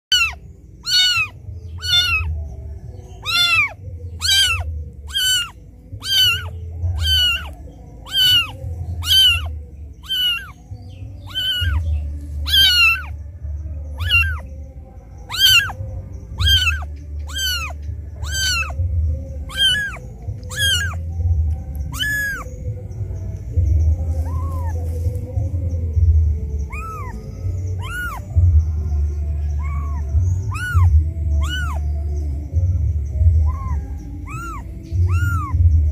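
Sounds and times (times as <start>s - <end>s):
kitten meowing: 0.1s - 2.4s, 3.2s - 10.6s, 11.3s - 11.8s, 12.4s - 13.2s, 14.0s - 14.4s, 15.3s - 15.8s, 16.4s - 21.2s, 21.8s - 22.5s, 24.2s - 24.8s, 26.7s - 28.4s, 29.6s - 31.9s, 33.4s - 35.6s.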